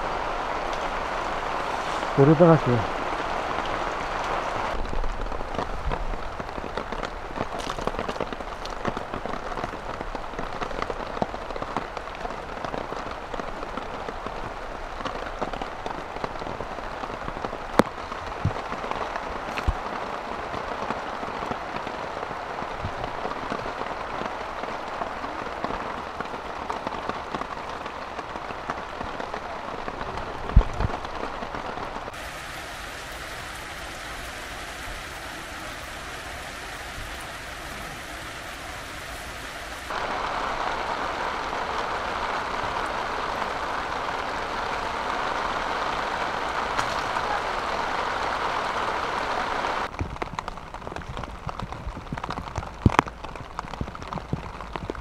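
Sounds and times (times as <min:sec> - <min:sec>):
heavy rain on tent fabric: 0:00.0 - 0:55.0.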